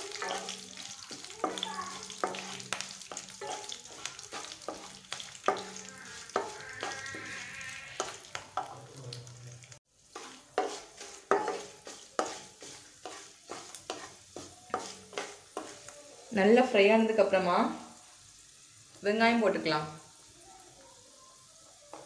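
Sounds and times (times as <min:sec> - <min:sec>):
spatula scraping and tapping pan: 0:00.0 - 0:09.2, 0:10.0 - 0:16.0
food frying in oil: 0:00.0 - 0:22.0.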